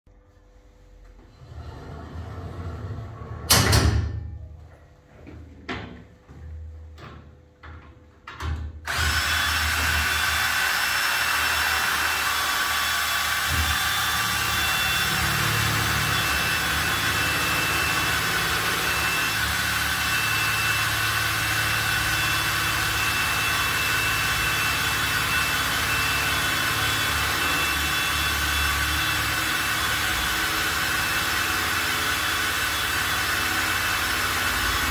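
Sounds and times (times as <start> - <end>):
cordless drill whining under load: 8.8 - 34.9.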